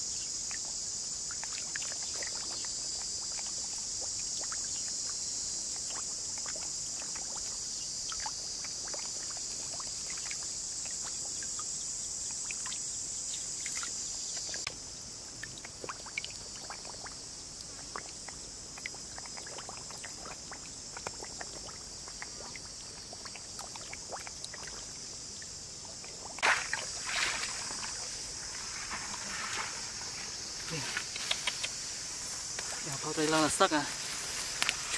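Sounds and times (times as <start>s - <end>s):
insect buzz: 0.0s - 34.9s
fish splashing in water: 1.3s - 4.9s, 15.4s - 30.2s.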